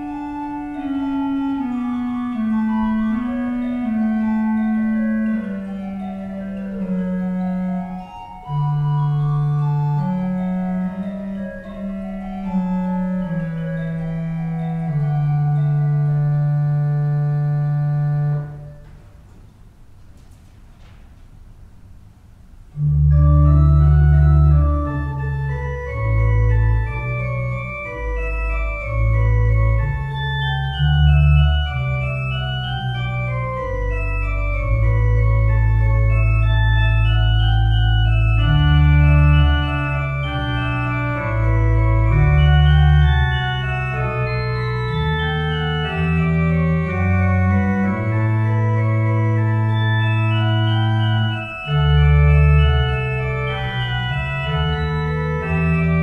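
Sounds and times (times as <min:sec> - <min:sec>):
organ chords: 0:00.0 - 0:20.2, 0:21.4 - 0:56.0.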